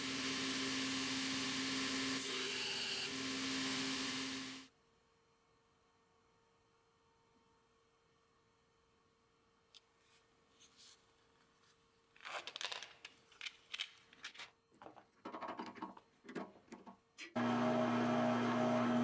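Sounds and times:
rustling and scraping of handling: 9.8s - 17.4s.

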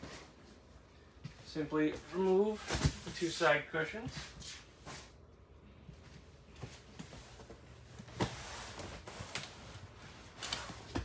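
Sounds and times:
low steady hum: 0.0s - 11.0s
cushions rustling and bumping: 5.9s - 11.0s.

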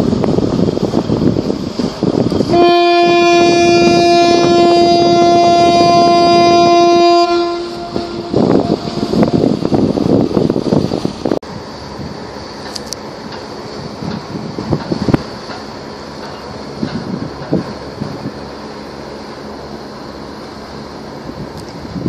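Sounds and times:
wind buffeting microphone: 0.0s - 22.0s
ship's horn blast: 2.4s - 9.6s.

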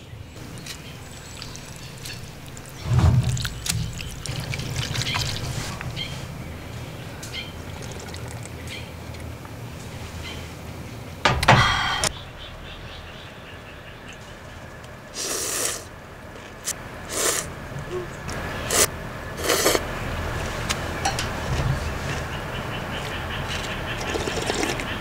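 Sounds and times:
drinking from a bowl: 0.4s - 6.1s, 7.3s - 9.3s, 23.5s - 25.0s
broth sloshing: 0.4s - 10.2s.

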